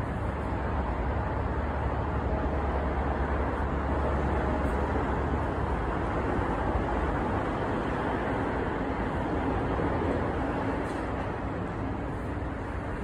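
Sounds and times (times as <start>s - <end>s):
outdoor low rumble and hiss: 0.0s - 13.0s.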